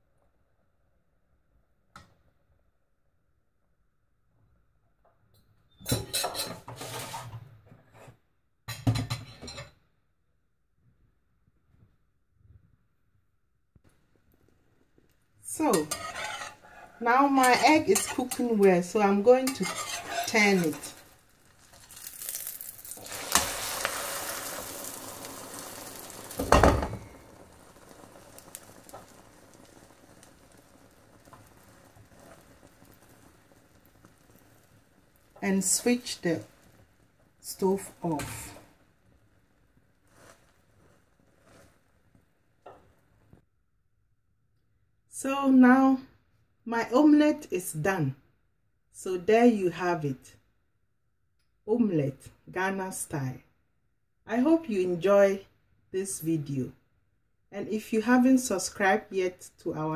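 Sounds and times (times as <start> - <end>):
egg sizzling in hot oil: 15.0 - 43.4.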